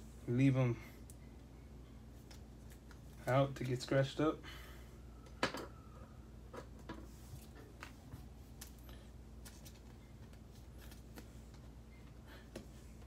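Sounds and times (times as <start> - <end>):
faint low hum: 0.0 - 13.0
trading cards rustling: 7.2 - 11.8.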